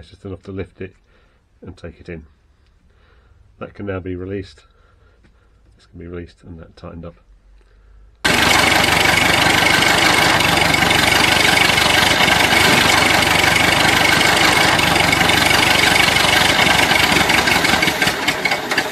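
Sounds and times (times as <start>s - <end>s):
constant whine: 8.2s - 18.9s
loud engine running: 8.3s - 18.9s.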